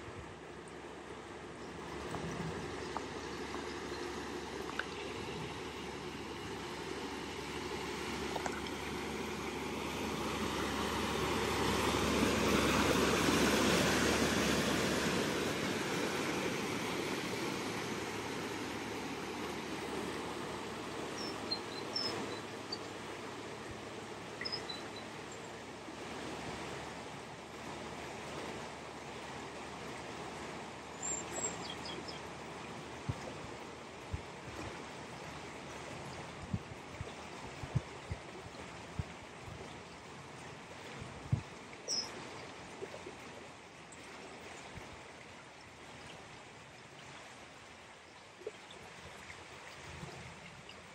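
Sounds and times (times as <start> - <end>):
stream flowing: 0.0 - 50.9
faint high chirps: 24.4 - 25.5.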